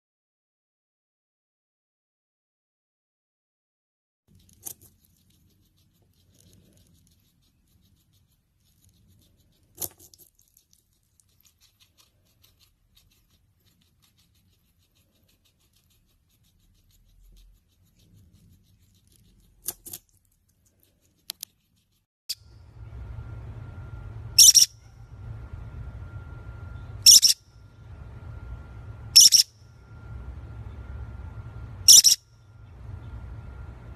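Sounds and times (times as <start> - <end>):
guinea pig crunching vegetable: 4.3 - 22.1.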